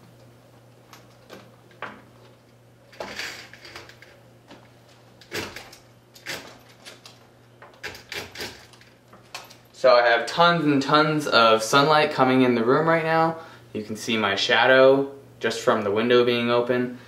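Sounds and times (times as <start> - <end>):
scraping rattle of blinds: 2.9 - 4.2
window blinds clicking and knocking: 5.2 - 7.2, 7.8 - 9.6.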